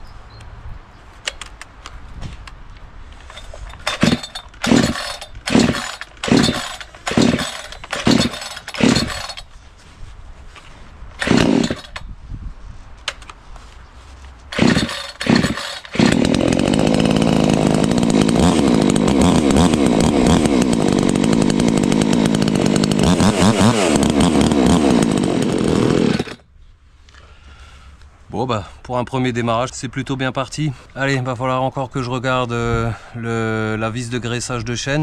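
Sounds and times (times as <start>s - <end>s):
chainsaw running: 3.3s - 9.5s, 11.2s - 12.0s, 14.5s - 26.4s
recoil starter yanks: 3.3s - 9.5s.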